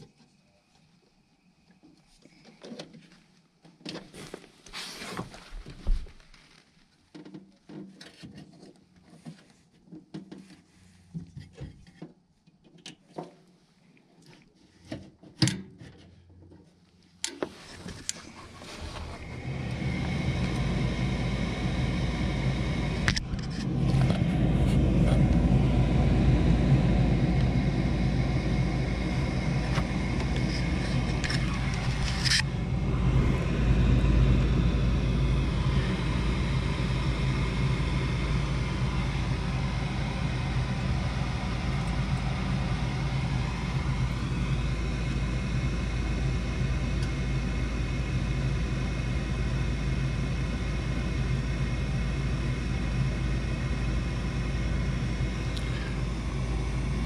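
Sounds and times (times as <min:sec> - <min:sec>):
furnace motor humming: 0:17.4 - 0:57.0.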